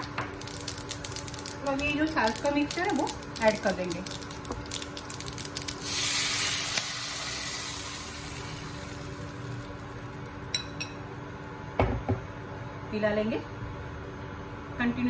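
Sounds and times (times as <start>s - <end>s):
batter sizzling in hot oil: 0.0s - 10.4s
spices crackling in hot oil: 0.0s - 10.6s.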